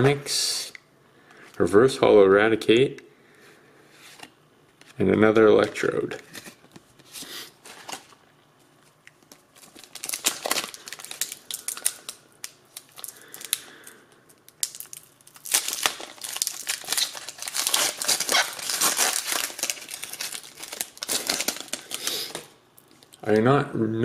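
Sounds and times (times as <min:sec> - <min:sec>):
foil wrapper crinkling: 0:09.3 - 0:23.1.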